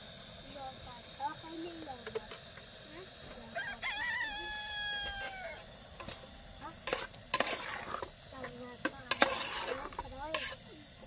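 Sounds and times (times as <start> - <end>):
rooster crowing: 3.5 - 5.7.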